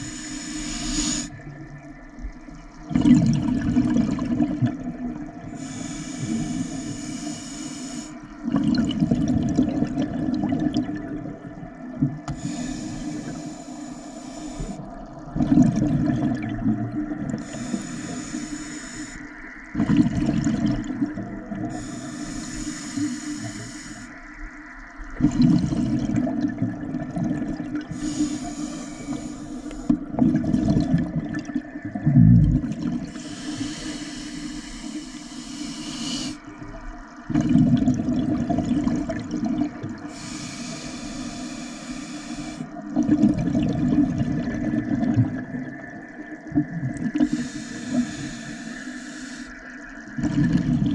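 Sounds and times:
regulator inhale hiss: 0.0 - 1.4, 5.4 - 8.4, 12.3 - 15.0, 17.4 - 19.6, 21.7 - 24.5, 27.8 - 30.1, 33.1 - 36.6, 40.1 - 42.8, 47.2 - 49.7
exhaled bubbles underwater: 0.0 - 50.9.

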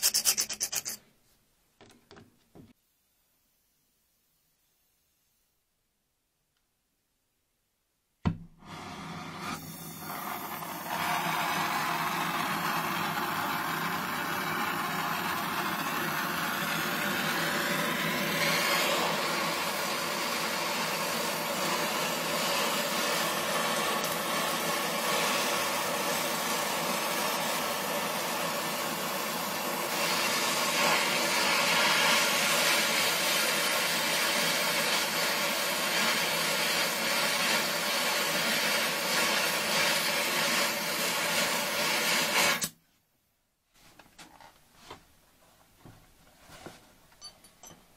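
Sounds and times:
welding torch flame hissing: 8.6 - 42.8.

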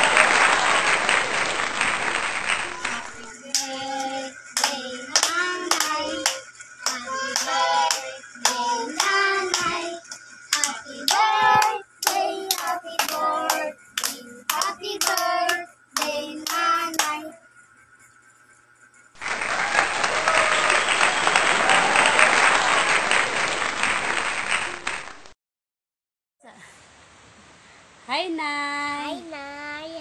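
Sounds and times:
hands clapping: 0.0 - 17.3, 19.2 - 25.4
children singing: 2.7 - 17.4.

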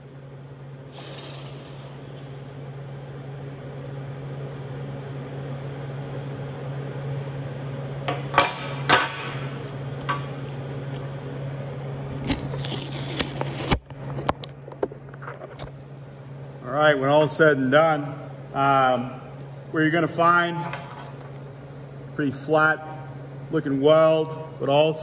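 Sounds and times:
welding arc crackling hiss: 0.9 - 2.7.

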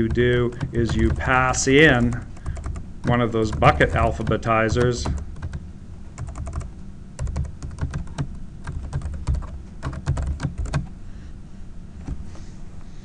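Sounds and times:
computer keyboard typing: 0.0 - 5.6, 6.2 - 10.9.

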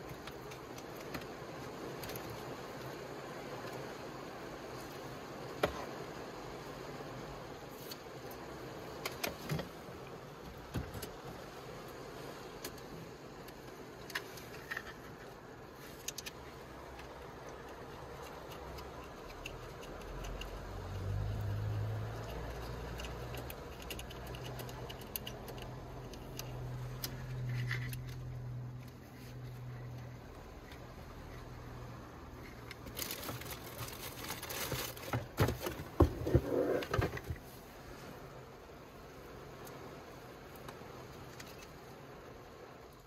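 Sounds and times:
background hiss: 0.0 - 43.0
clicks and rattles of handling parts: 13.4 - 21.0, 22.1 - 31.5, 32.4 - 37.6.

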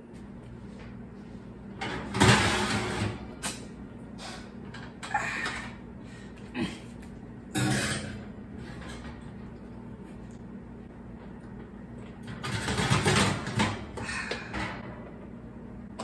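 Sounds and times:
steady low hum: 0.0 - 16.0
dish scraping on oven rack: 7.6 - 9.2.

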